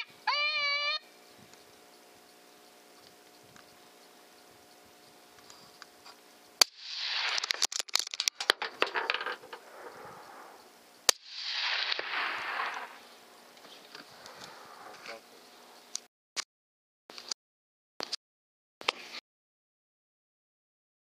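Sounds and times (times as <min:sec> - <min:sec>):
rifle shots: 0:06.6 - 0:13.3.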